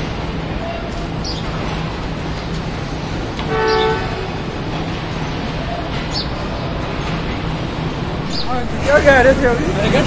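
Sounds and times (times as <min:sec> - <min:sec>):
train rumbling: 0:00.0 - 0:10.0
train horn: 0:03.4 - 0:04.5.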